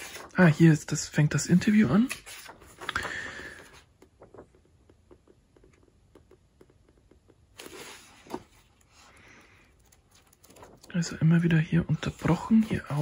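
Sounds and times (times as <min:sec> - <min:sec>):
book page turning: 0:00.0 - 0:05.0, 0:07.5 - 0:13.0
faint taps and paper rustles: 0:01.6 - 0:08.9, 0:09.8 - 0:10.9.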